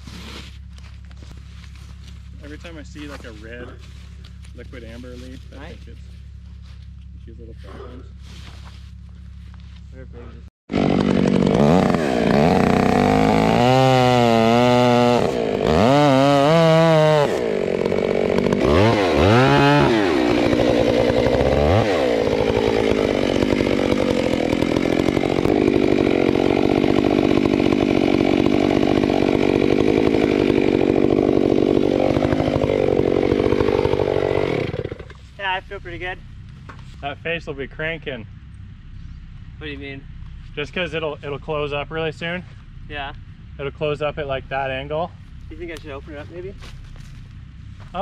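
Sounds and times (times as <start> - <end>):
chainsaw revving and cutting wood: 10.7 - 35.3.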